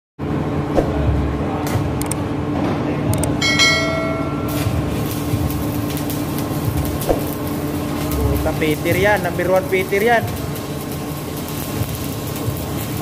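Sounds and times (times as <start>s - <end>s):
constant hum: 0.2s - 13.0s
notification bell ding: 3.4s - 4.6s
welding arc crackling and sizzling: 4.3s - 13.0s.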